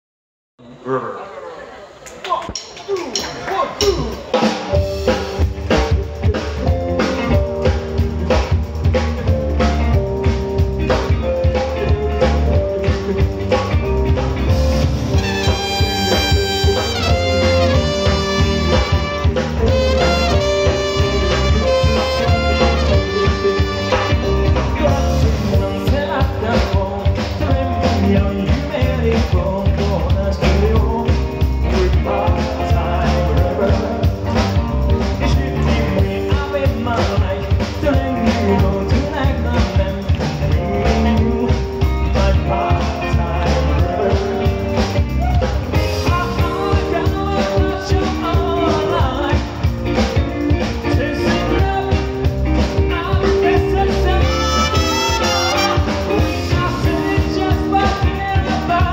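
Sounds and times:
drums: 0:01.9 - 0:58.9
keyboard: 0:03.3 - 0:58.9
electric bass: 0:03.8 - 0:58.9
person singing into a microphone: 0:11.2 - 0:14.0, 0:15.2 - 0:58.9
saxophones and trumpet: 0:15.0 - 0:24.7, 0:54.1 - 0:56.5.

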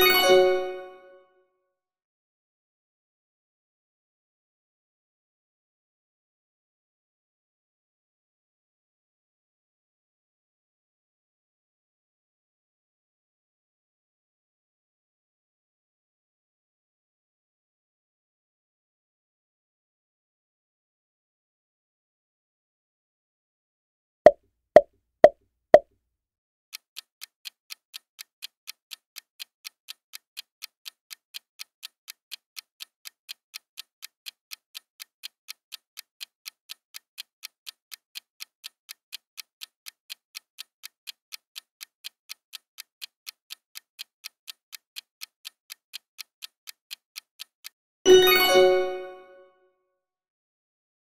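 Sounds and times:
short chime: 0:00.0 - 0:01.2, 0:48.1 - 0:49.5
clock-like ticking: 0:26.8 - 0:49.1.

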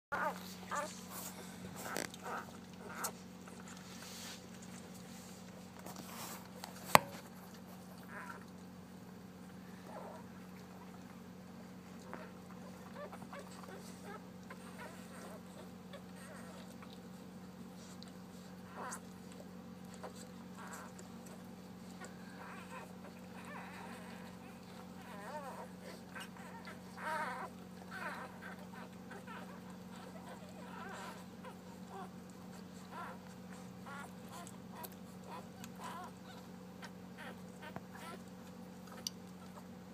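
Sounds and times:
puppies squeaking: 0:00.1 - 0:03.7, 0:12.1 - 0:17.1, 0:17.8 - 0:39.8
steady low hum: 0:00.1 - 0:39.9.

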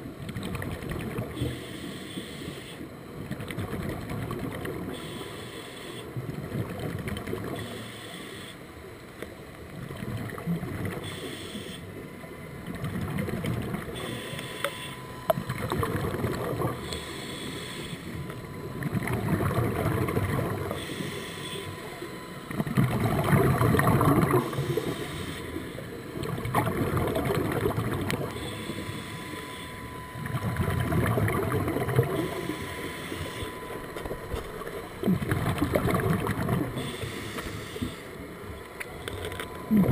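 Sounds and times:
diver breathing through regulator: 0:01.4 - 0:02.9, 0:04.9 - 0:06.1, 0:07.6 - 0:08.6, 0:11.0 - 0:11.9, 0:14.0 - 0:15.1, 0:16.4 - 0:18.4, 0:19.4 - 0:22.1, 0:23.1 - 0:26.0, 0:28.2 - 0:30.3, 0:31.9 - 0:33.9, 0:35.0 - 0:38.4
bubbling exhaled air: 0:15.3 - 0:21.6, 0:22.6 - 0:29.6, 0:30.2 - 0:33.6, 0:34.8 - 0:38.1, 0:39.7 - 0:39.9.

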